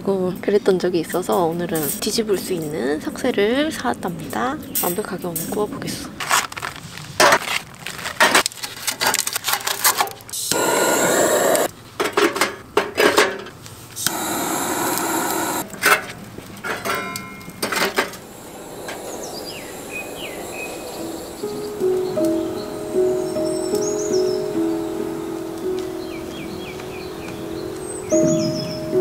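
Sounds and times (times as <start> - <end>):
steady rushing noise: 10.5 - 11.7, 14.1 - 15.6, 18.2 - 22.6
faint bird chirps: 18.3 - 24.5.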